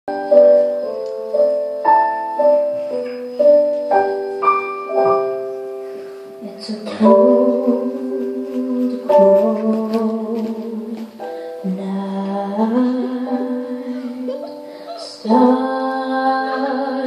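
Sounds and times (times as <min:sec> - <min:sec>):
slow piano chords: 0:00.1 - 0:17.0.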